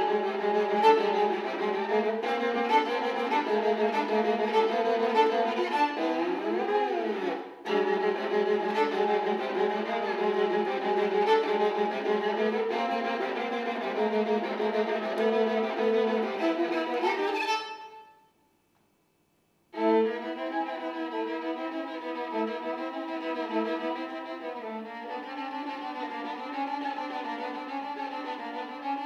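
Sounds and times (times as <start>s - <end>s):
bowed viola sustained notes: 0.0s - 18.2s, 19.8s - 29.0s.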